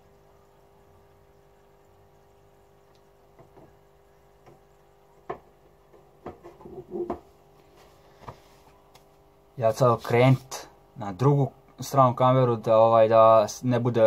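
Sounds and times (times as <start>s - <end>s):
faint steady hum: 0.0s - 14.0s.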